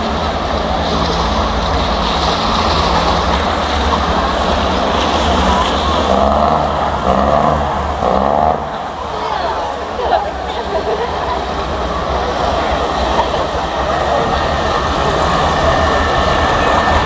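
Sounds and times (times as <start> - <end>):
engines droning: 0.0 - 17.0
people's voices: 0.0 - 17.0.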